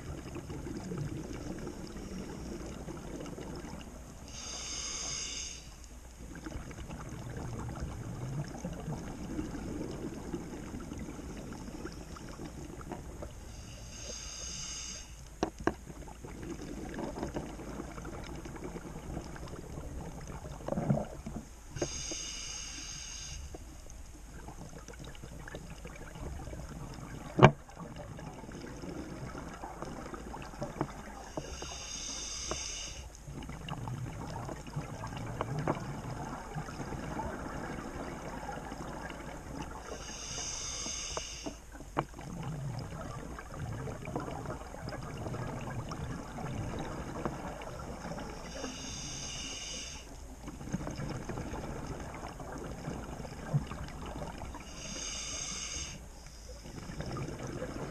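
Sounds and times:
gurgle of exhaled bubbles: 0:00.0 - 0:04.2, 0:06.2 - 0:13.4, 0:15.9 - 0:21.5, 0:24.3 - 0:31.4, 0:33.2 - 0:40.1, 0:42.0 - 0:49.2, 0:50.4 - 0:55.4, 0:56.6 - 0:57.9
regulator inhalation hiss: 0:04.3 - 0:05.8, 0:13.4 - 0:15.3, 0:21.8 - 0:23.6, 0:31.3 - 0:33.2, 0:39.8 - 0:41.7, 0:48.4 - 0:50.2, 0:54.6 - 0:56.8.

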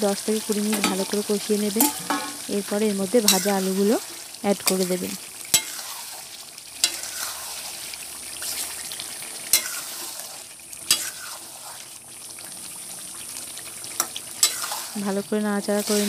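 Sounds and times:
curry sizzling in a pan: 0:00.0 - 0:16.0
spatula knocking pan: 0:00.7 - 0:02.5
metal spatula scraping pan: 0:01.8 - 0:02.5, 0:05.5 - 0:06.2, 0:06.8 - 0:07.8, 0:09.5 - 0:11.9, 0:14.0 - 0:15.0.

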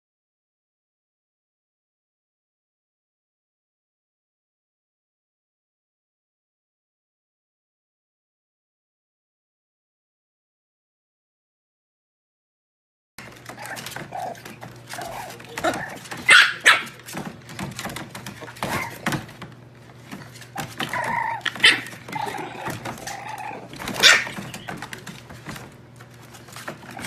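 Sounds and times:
puppies barking: 0:13.2 - 0:27.0
puppies whimpering: 0:13.5 - 0:17.0, 0:20.6 - 0:25.0.

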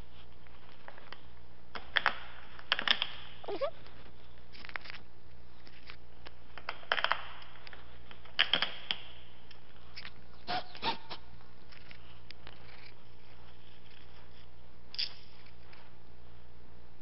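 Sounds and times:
steady low hum: 0:09.0 - 0:17.0.

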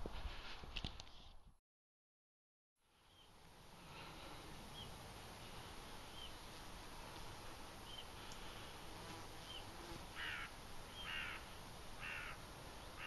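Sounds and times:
faint outdoor background noise: 0:02.8 - 0:13.0
small bird chirping: 0:09.4 - 0:13.0
crow cawing: 0:10.2 - 0:12.4.

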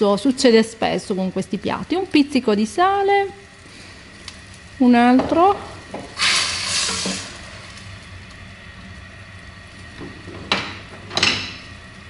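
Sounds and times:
sauce sizzling in pan: 0:01.9 - 0:10.0.

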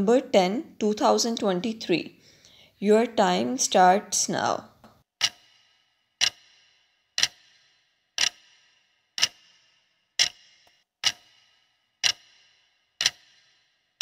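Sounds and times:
clock ticks with ringing tail: 0:05.2 - 0:14.0.

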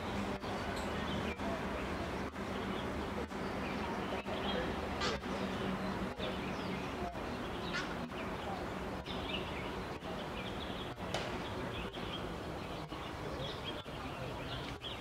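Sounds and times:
small birds chirping: 0:00.0 - 0:15.0
steady background hiss: 0:00.0 - 0:15.0.

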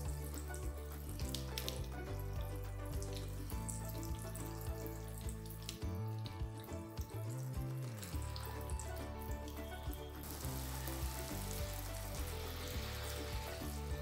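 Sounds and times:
background music with bass line: 0:00.0 - 0:14.0
masala sizzling in a frying pan: 0:10.2 - 0:14.0.

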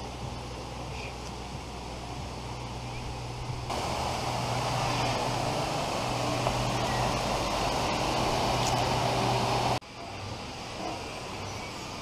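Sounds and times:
low steady hum: 0:00.0 - 0:12.0
water rushing into pool: 0:03.7 - 0:09.8.

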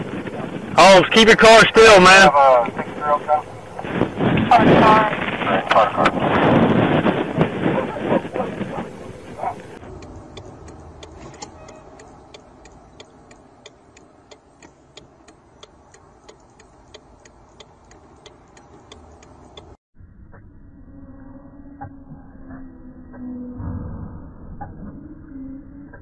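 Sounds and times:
loud rushing noise: 0:00.0 - 0:09.9
faint steady ticking: 0:08.3 - 0:19.8.

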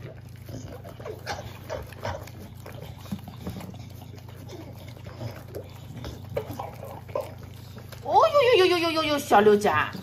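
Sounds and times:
dogs licking and slurping: 0:00.0 - 0:10.0
dogs snuffling grunts: 0:00.4 - 0:08.0.

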